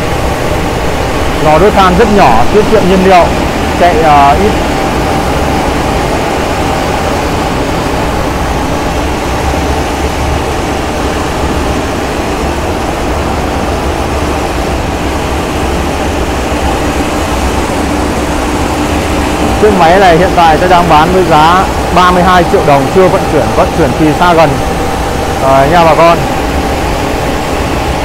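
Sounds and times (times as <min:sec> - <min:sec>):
dryer machine humming and whining: 0:00.0 - 0:28.0.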